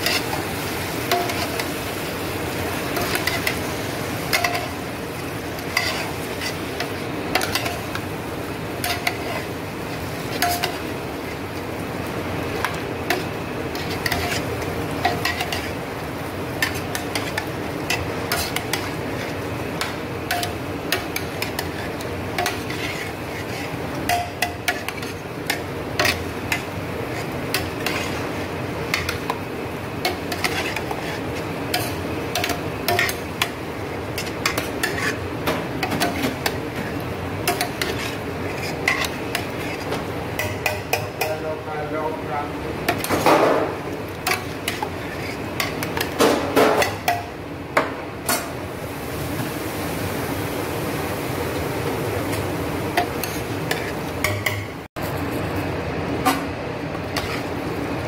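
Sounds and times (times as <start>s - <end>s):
food sizzling: 0.0s - 58.0s
utensil clinking against metal pot: 24.0s - 26.6s, 40.4s - 41.6s.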